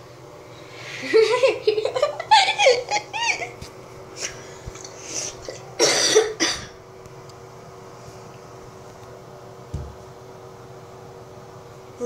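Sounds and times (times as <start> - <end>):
faint steady hum: 0.0 - 12.0
child laughing: 1.0 - 3.6
loud cough: 5.8 - 6.8.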